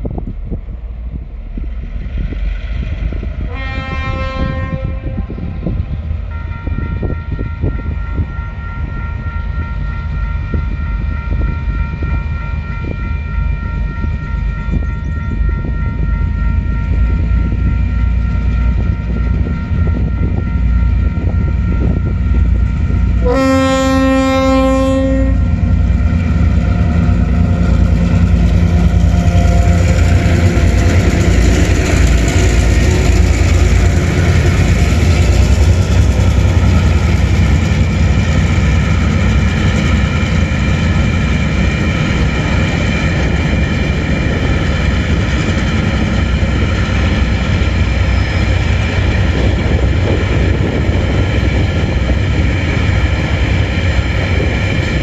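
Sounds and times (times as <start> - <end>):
diesel locomotive engines: 0.0 - 55.0
locomotive horn blast: 3.4 - 5.7, 6.3 - 40.4.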